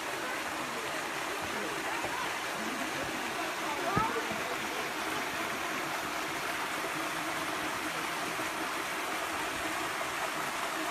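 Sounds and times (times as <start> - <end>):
stream water running over rock: 0.0 - 10.9.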